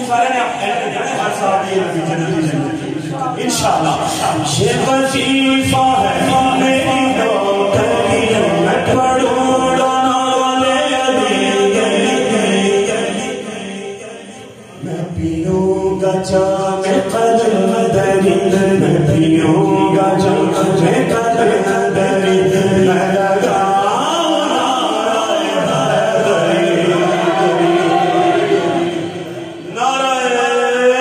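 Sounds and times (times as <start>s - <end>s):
man singing into a microphone: 3.2s - 31.0s.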